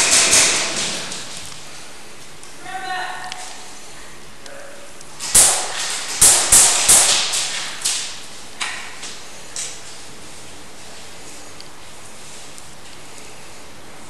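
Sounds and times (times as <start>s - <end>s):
echoing airsoft gun cracks: 5.2s - 8.8s.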